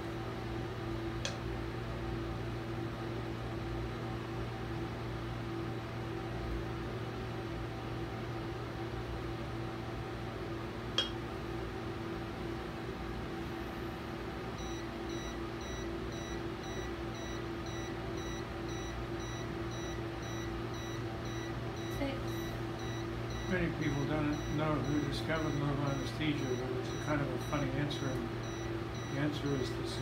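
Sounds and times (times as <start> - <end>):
steady equipment hum: 0.0 - 30.0
rapid high beeps: 14.6 - 30.0.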